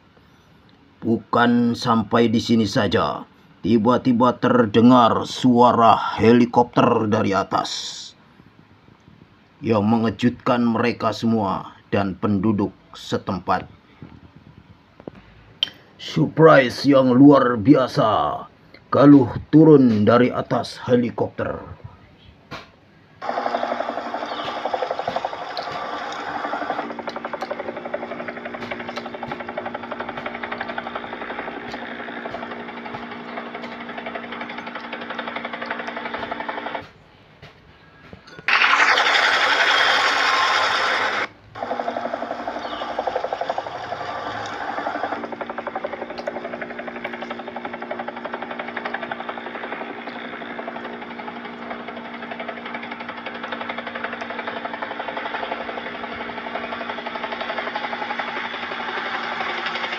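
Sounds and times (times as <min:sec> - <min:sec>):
helicopter engine drone: 0:23.2 - 0:36.8, 0:38.7 - 0:59.9
helicopter rotor chop: 0:23.2 - 0:36.9, 0:38.5 - 0:59.9.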